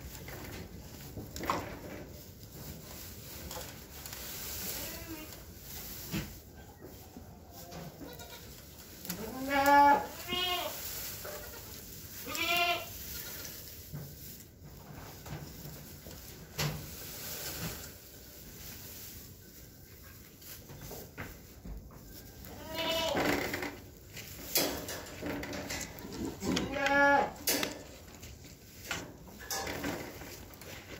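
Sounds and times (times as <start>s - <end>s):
goats bleating: 9.2s - 10.8s, 12.2s - 13.4s, 22.5s - 23.3s, 26.1s - 27.4s.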